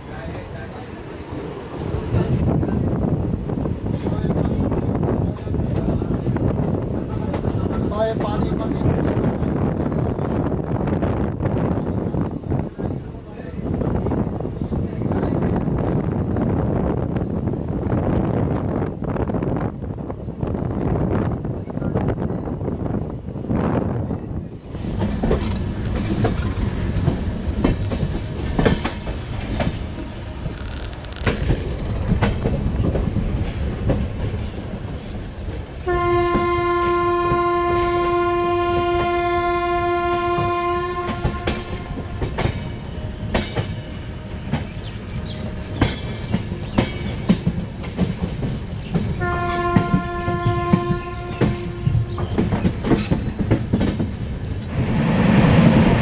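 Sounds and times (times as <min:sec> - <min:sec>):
train wheels clacking on rails: 0:24.7 - 0:35.1, 0:40.2 - 0:54.6
train horn blast: 0:35.8 - 0:42.1, 0:49.2 - 0:52.1.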